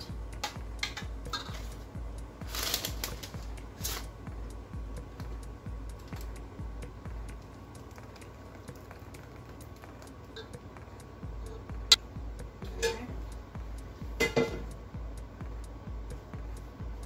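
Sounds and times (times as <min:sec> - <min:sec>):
music with pulsing beat: 0:00.0 - 0:17.0.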